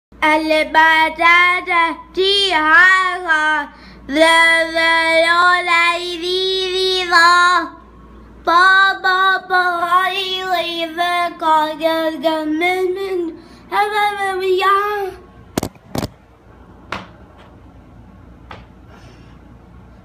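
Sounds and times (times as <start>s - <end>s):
child singing: 0.2s - 7.8s, 8.5s - 15.2s.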